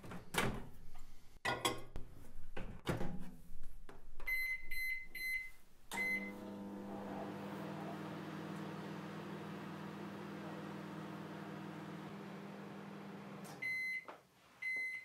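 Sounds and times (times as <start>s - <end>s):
microwave keypad beeps: 4.3s - 6.4s, 13.6s - 15.0s
microwave oven humming: 5.9s - 13.8s.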